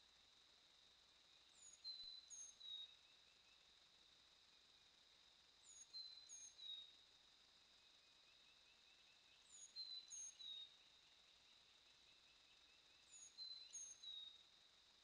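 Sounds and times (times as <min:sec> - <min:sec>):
bird singing: 0:01.5 - 0:03.6, 0:05.6 - 0:07.0, 0:08.2 - 0:14.4.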